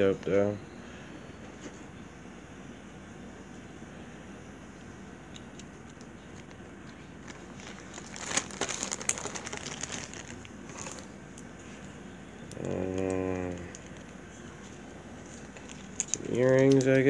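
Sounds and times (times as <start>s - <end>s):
packaging crinkling: 6.0s - 11.9s, 12.5s - 17.0s.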